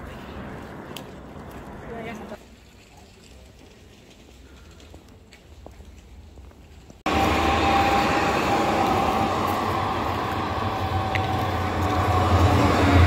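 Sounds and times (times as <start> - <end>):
tram passing: 0.0 - 2.7, 7.1 - 13.0.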